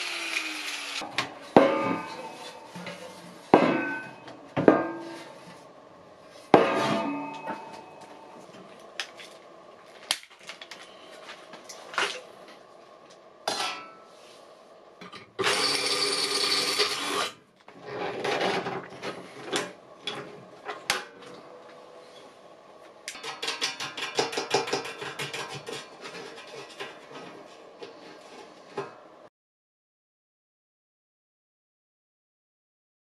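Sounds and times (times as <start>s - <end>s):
cordless drill boring through steel: 0.0s - 1.0s, 15.4s - 17.4s
metal knocking and scraping on wood: 23.2s - 28.0s.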